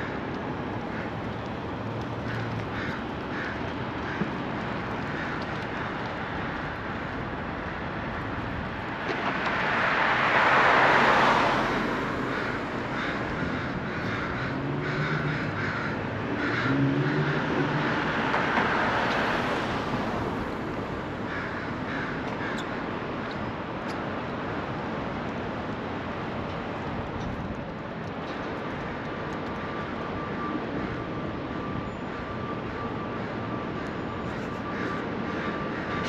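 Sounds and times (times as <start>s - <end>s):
crows cawing: 0.0s - 1.2s, 2.2s - 6.8s, 11.0s - 19.0s, 21.2s - 23.4s, 32.7s - 36.0s
city traffic: 0.0s - 36.0s
vehicle passing: 9.4s - 22.2s.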